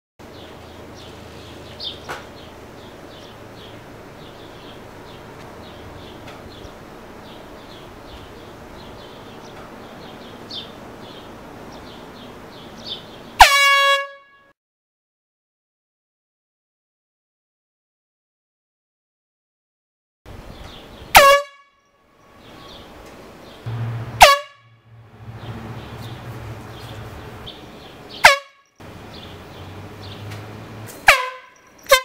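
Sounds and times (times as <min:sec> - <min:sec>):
air horn blast: 0:13.4 - 0:14.5, 0:21.1 - 0:21.7, 0:23.7 - 0:27.5, 0:28.2 - 0:28.6, 0:31.0 - 0:32.0.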